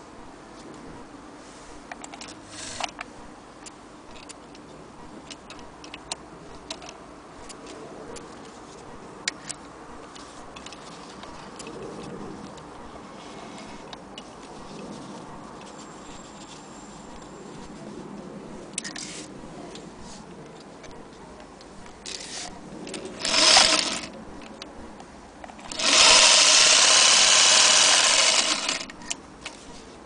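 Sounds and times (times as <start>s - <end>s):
sewing machine stitching: 23.2s - 24.1s, 25.7s - 28.9s.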